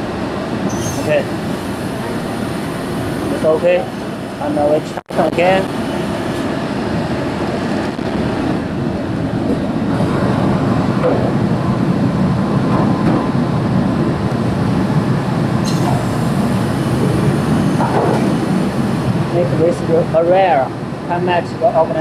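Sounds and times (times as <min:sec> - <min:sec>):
low rumble of machinery: 0:13.7 - 0:19.7.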